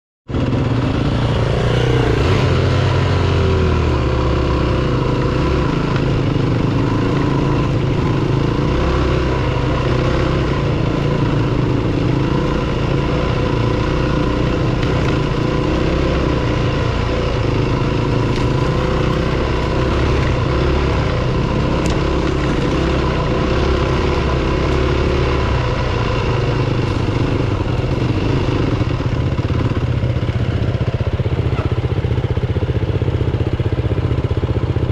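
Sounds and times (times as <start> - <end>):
dirt bike engine at low speed: 0.3 - 34.9.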